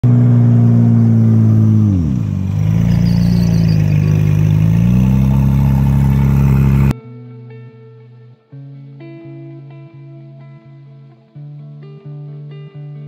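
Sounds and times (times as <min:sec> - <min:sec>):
race buggy engine running: 0:00.0 - 0:06.9.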